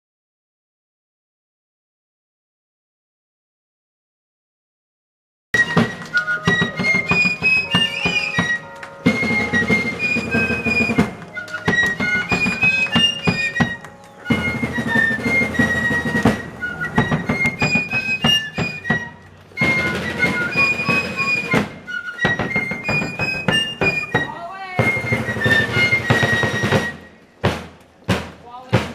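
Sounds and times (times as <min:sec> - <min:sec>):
fifes playing shrill melody: 0:05.6 - 0:27.2
snare drum rolls: 0:05.6 - 0:28.9.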